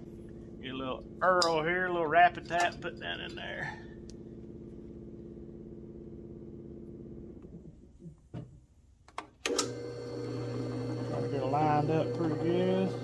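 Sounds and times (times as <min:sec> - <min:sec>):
drill press motor humming: 0:09.5 - 0:13.0.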